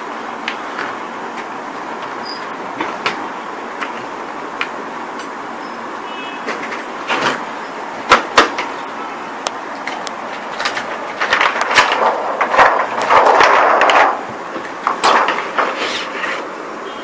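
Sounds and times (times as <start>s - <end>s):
plastic sheets clattering: 9.7s - 16.6s.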